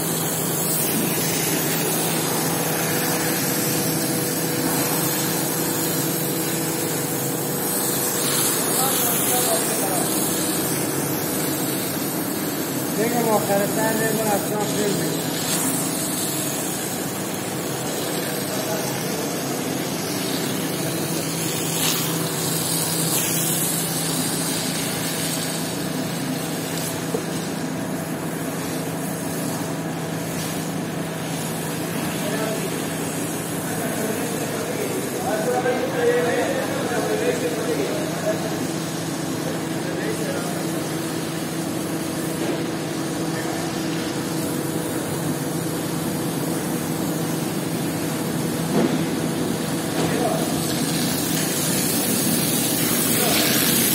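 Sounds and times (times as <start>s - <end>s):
pump motor hum: 0.0s - 53.9s
water jet hissing on rug: 0.0s - 53.9s
water hissing: 50.2s - 53.9s.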